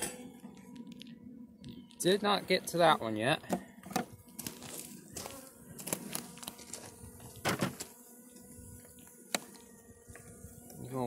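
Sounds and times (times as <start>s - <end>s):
bees humming: 0.0s - 11.0s.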